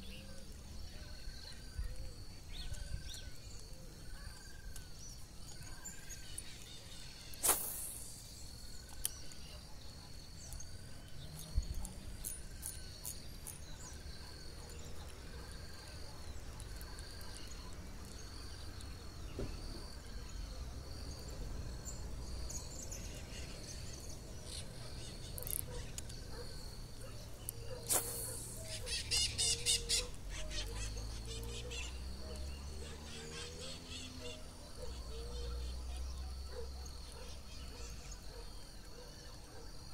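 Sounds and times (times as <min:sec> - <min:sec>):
short chirping call: 0:27.4 - 0:34.5.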